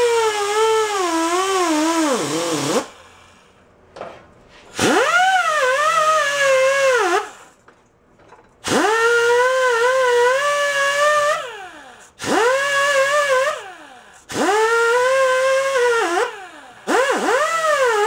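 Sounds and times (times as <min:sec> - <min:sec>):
drill-driven wire wheel whining: 0:00.0 - 0:03.0, 0:04.8 - 0:07.6, 0:08.6 - 0:18.0.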